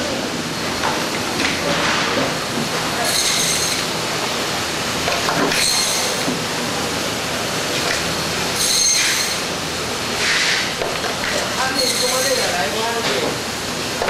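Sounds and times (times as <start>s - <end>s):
food processing machinery running: 0.0s - 14.0s
high-pitched metallic squeal: 3.0s - 3.8s, 5.5s - 6.2s, 8.6s - 9.4s, 11.6s - 12.6s.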